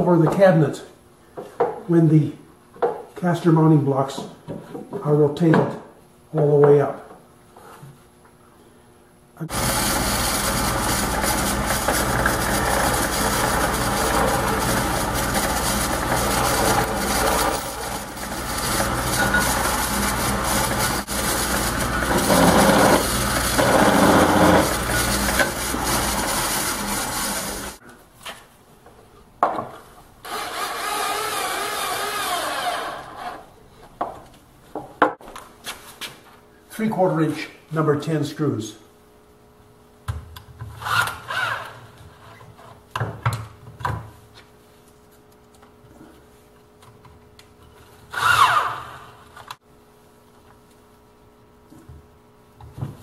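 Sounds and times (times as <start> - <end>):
drill press boring into wood: 9.5 - 27.8, 30.2 - 33.4, 48.1 - 49.3
power tool burst: 9.5 - 27.8.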